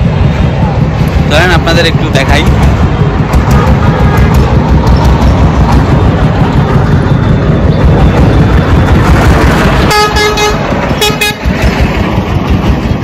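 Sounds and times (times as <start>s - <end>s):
busy road traffic rumble: 0.0s - 13.0s
vehicle horn blasts: 9.9s - 11.5s.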